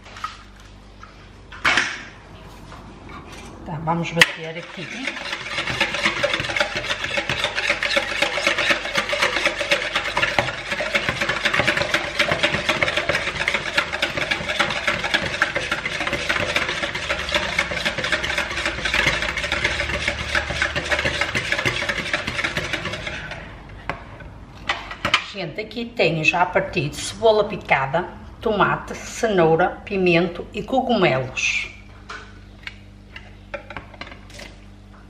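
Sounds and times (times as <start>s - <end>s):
whisk beating eggs in bowl: 4.3s - 24.1s.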